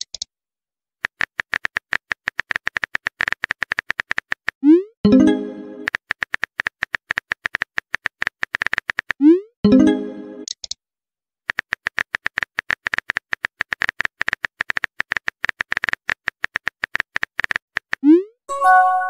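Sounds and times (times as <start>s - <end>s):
keyboard typing clicks: 1.0s - 10.8s
brief chime: 18.5s - 19.0s.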